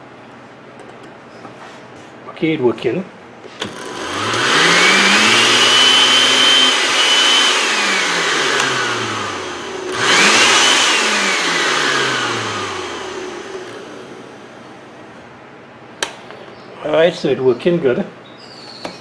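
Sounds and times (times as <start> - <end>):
blender motor whining: 3.6 - 14.4.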